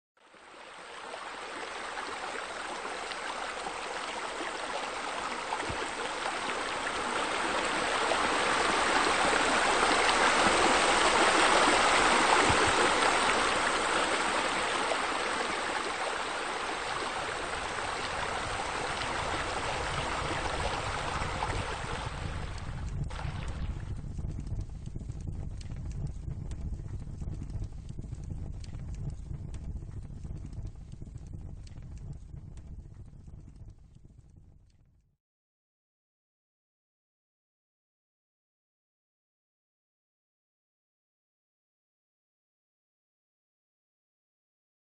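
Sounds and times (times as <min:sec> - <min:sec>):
flowing water rushing: 0:00.2 - 0:24.0
low rumble: 0:17.0 - 0:34.7.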